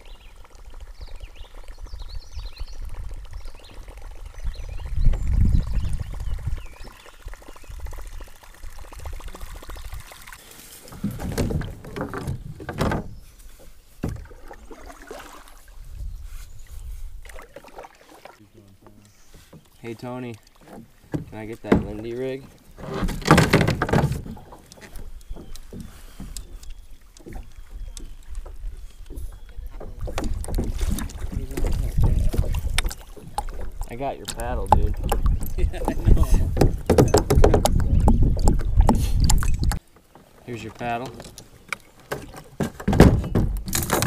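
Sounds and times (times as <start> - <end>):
wind on microphone: 1.0 - 10.1, 15.7 - 17.4, 27.8 - 39.8
paddle strokes in water: 9.0 - 44.0.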